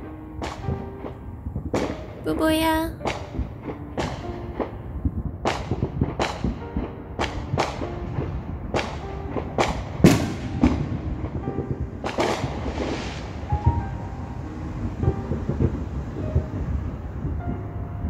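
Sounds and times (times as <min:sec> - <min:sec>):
background music: 0:00.0 - 0:18.0
fireworks bangs and cracks: 0:00.4 - 0:02.4, 0:03.0 - 0:04.8, 0:05.4 - 0:13.9.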